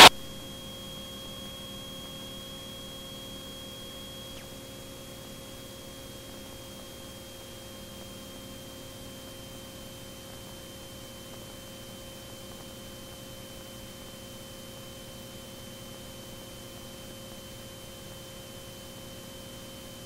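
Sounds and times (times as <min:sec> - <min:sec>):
thin high whine: 0:00.0 - 0:10.0
aircraft engine drone: 0:00.0 - 0:10.3
electrical hum and hiss: 0:00.0 - 0:19.2.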